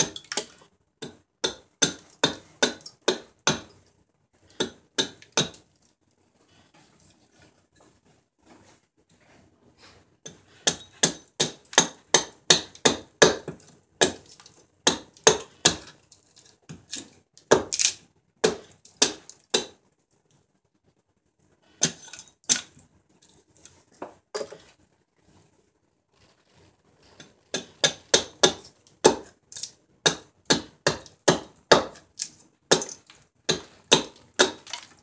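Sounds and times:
hatchet chopping wood: 0.0 - 3.7, 4.5 - 5.6, 10.3 - 15.9, 16.7 - 19.8, 27.5 - 35.0.

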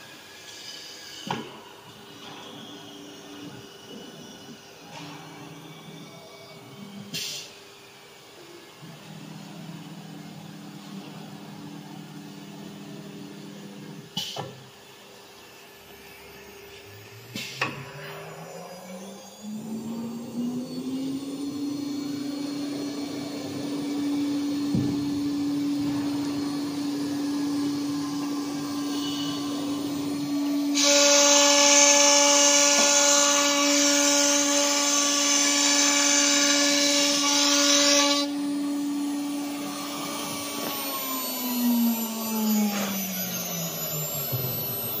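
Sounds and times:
router spindle whine: 0.0 - 45.0
router bit cutting board: 17.1 - 45.0.

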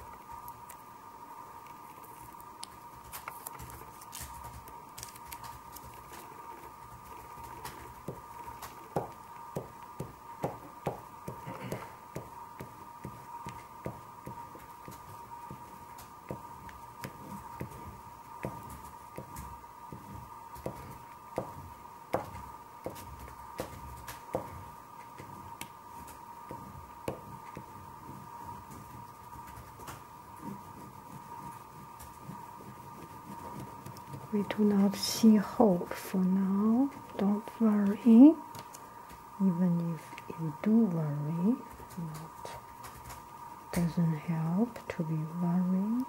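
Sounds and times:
oil pastel scraping on paper: 22.4 - 36.1.

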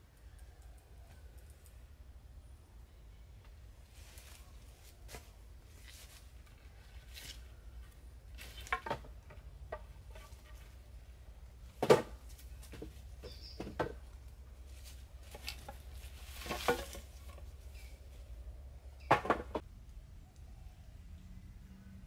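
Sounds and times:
objects knocking and clattering: 8.5 - 10.6, 16.4 - 17.5, 19.0 - 19.7.

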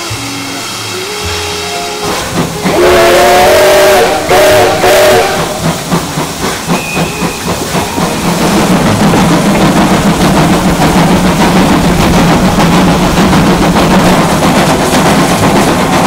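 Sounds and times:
steam whistle blasts: 0.0 - 5.6
locomotive exhaust chuffs: 0.0 - 16.0.

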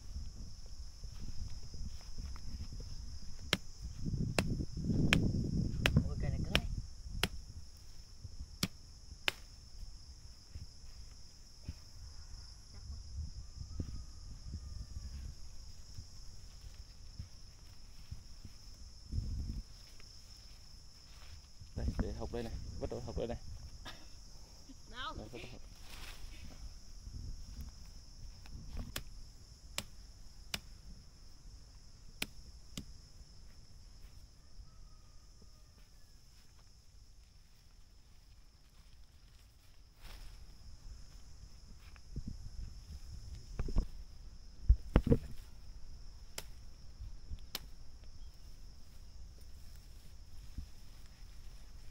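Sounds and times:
high-pitched insect drone: 0.0 - 51.9
stems snapping: 4.3 - 7.4, 8.6 - 9.6, 28.4 - 30.7, 32.2 - 32.9, 46.3 - 46.6, 47.3 - 47.8
leafy branches rustling: 15.2 - 29.0.

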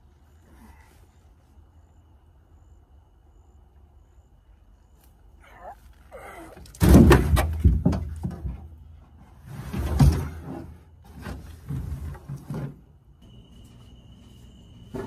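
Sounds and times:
thumps and knocks: 6.7 - 8.8.

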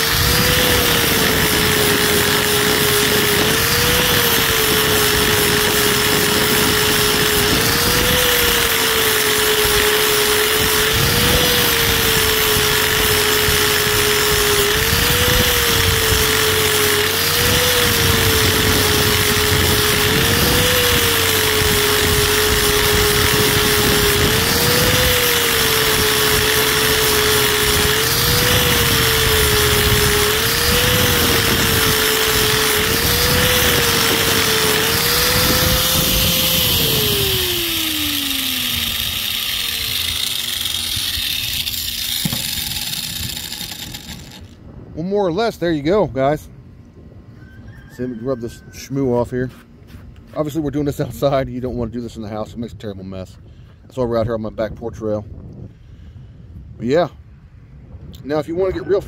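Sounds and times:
angle grinder whining: 0.0 - 44.6.

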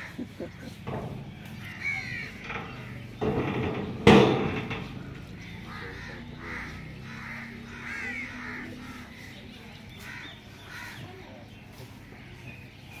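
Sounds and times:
crows cawing: 0.0 - 3.2, 4.7 - 11.2.

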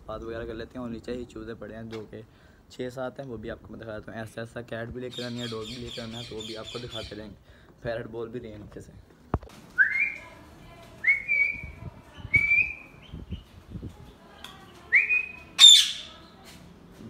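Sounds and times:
parrot harsh squawk: 15.6 - 16.1.

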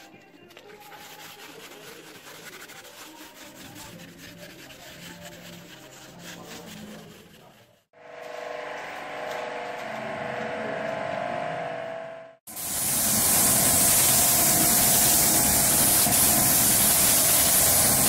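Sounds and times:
sponge scrubbing car panel: 0.6 - 7.8.

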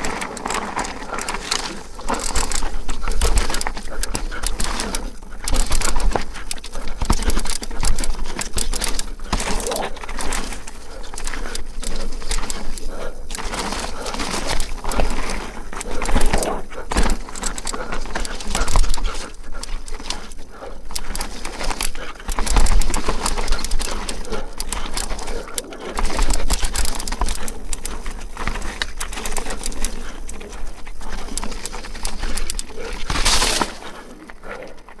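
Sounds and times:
bike rattles and knocks: 0.0 - 35.0
tyre noise on dirt: 0.0 - 35.0.

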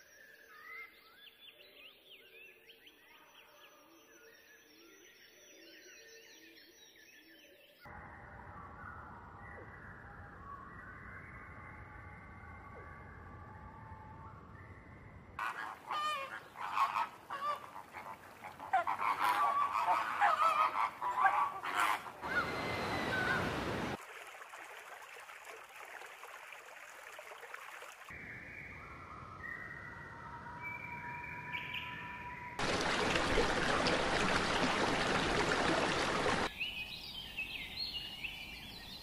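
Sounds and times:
geese honking: 15.4 - 23.7
waterfowl calls: 15.4 - 24.0, 32.6 - 36.5.

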